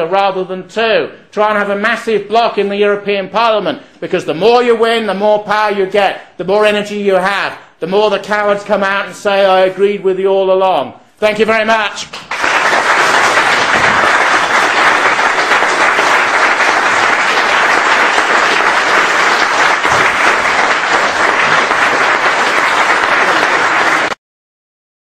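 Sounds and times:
audience applauding: 12.0s - 24.2s.

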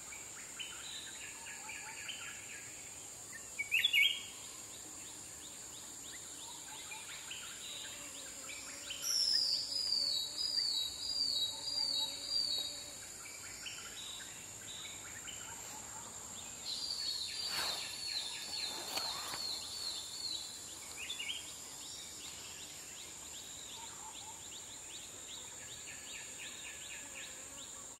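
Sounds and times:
soft bird chirps: 13.4s - 24.8s.

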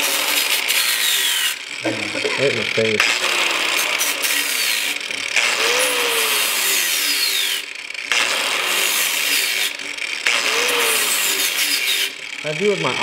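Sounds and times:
angle grinder grinding metal: 0.0s - 13.0s.

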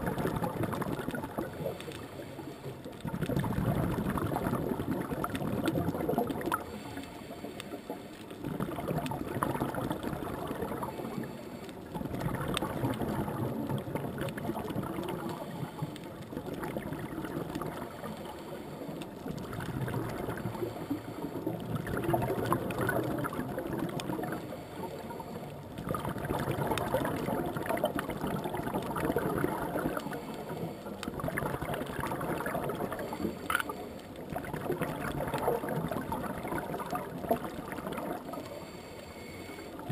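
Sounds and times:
scuba regulator exhaled bubbles: 0.0s - 2.3s, 2.9s - 39.9s.

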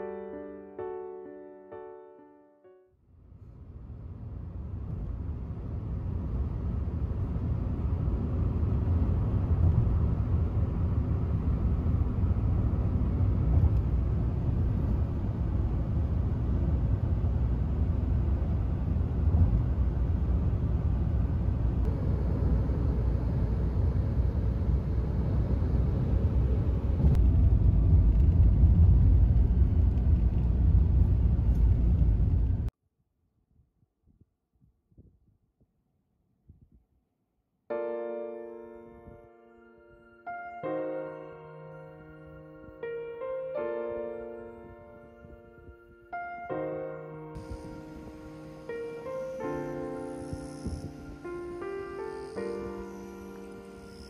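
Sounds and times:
car road noise rumble: 3.2s - 32.7s, 47.3s - 54.0s.

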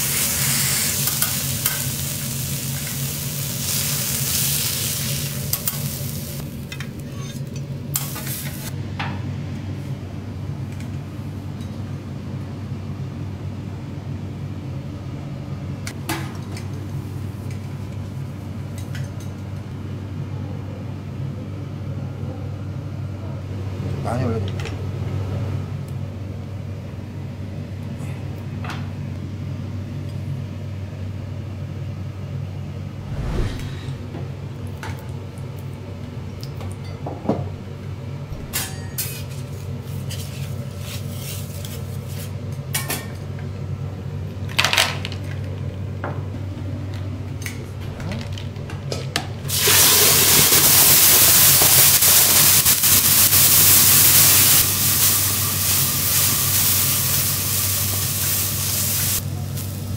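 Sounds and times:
steam hissing: 0.0s - 6.4s, 49.5s - 59.9s
steady low hum: 32.7s - 36.3s
utensils clinking on metal griddle: 38.6s - 43.2s.

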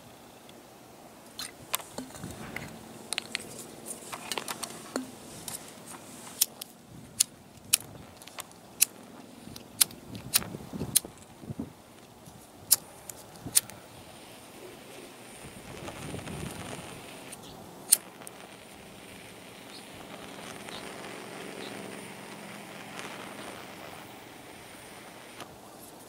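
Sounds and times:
handling noise: 1.4s - 6.8s
lighter clicking: 1.4s - 11.1s, 16.6s - 25.5s.

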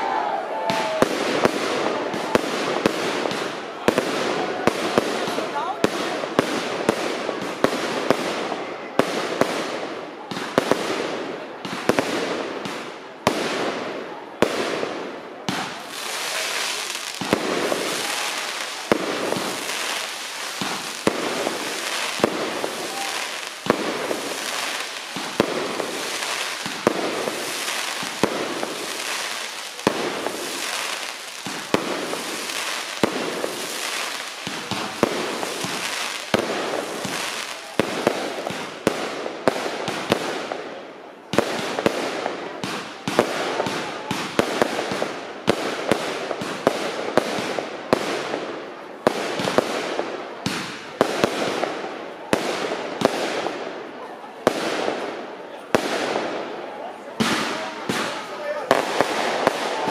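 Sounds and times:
fireworks bursting with bangs: 0.0s - 59.9s
fireworks crackling and hissing: 0.0s - 59.9s.

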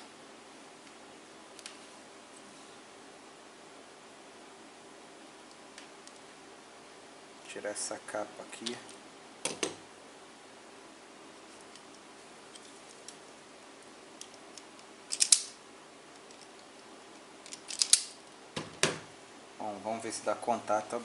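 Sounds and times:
wire stripper snapping clatter: 14.2s - 15.6s, 17.5s - 18.2s.

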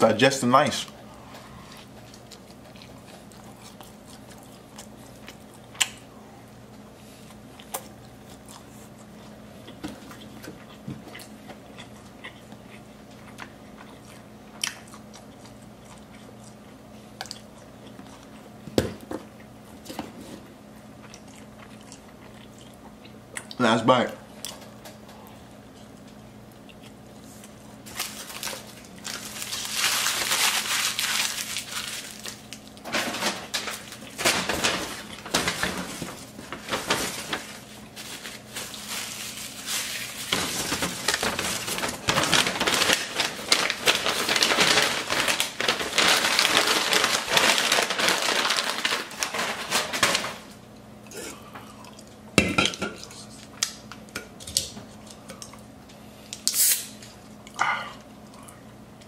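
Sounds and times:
paper bag crinkling: 27.8s - 50.6s.

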